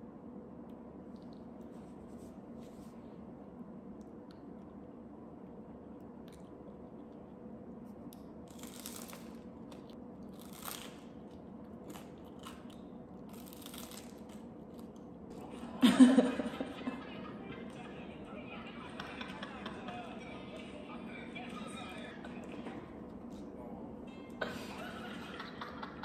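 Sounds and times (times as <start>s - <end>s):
crunching bites and chewing: 6.0s - 15.3s.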